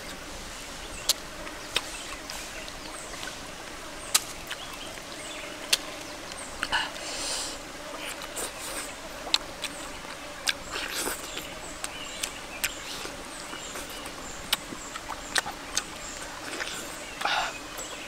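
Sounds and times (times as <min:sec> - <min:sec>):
lip smacks and chewing: 0:04.1 - 0:04.9, 0:08.0 - 0:18.0.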